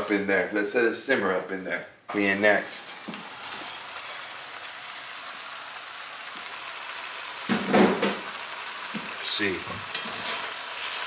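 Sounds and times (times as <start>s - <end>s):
meat sizzling in a pan: 2.4s - 11.0s.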